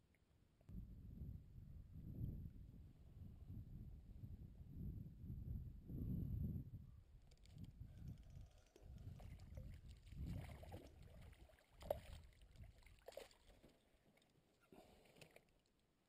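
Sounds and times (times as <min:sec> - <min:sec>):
water rumbling against canoe hull: 0:08.8 - 0:13.7.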